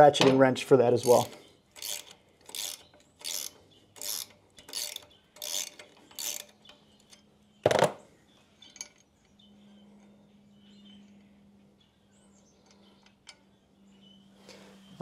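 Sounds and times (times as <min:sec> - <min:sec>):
ratcheting wrench clicking: 0:01.0 - 0:07.8.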